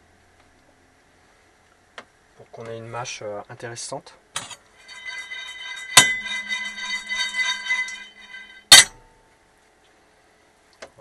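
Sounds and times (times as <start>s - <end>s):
pan scraping on metal grate: 4.8s - 8.8s
sharp metal knocks: 4.8s - 9.0s.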